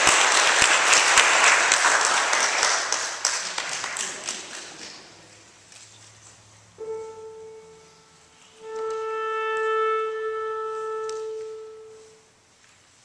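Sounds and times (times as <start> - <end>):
piano note: 6.8 - 12.3
clarinet long held tone: 6.8 - 12.4.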